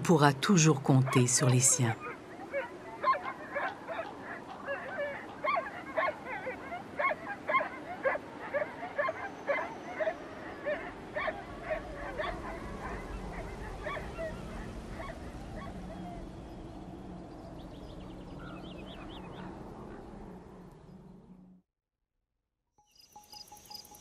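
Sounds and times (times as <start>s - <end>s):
wolves whining and yipping: 1.9s - 20.8s
low steady drone: 9.4s - 21.6s.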